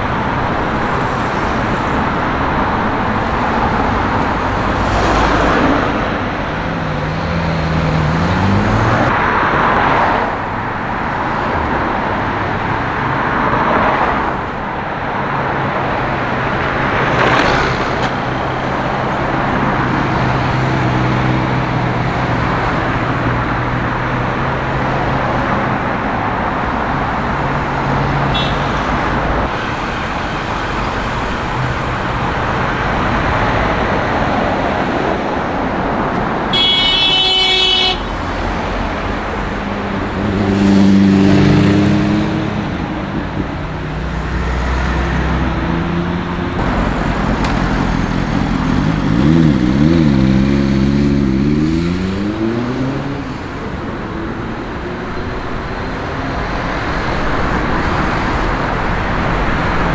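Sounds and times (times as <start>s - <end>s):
cars passing: 0.0s - 59.9s
vehicle engine passing close: 4.5s - 9.1s, 38.4s - 53.5s
car horn: 28.3s - 29.0s, 36.5s - 38.4s.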